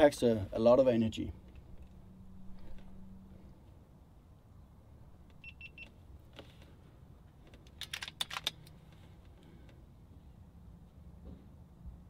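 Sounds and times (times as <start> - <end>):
short electronic beeps: 5.4 - 5.9
air rifle lever clicking: 7.6 - 8.8.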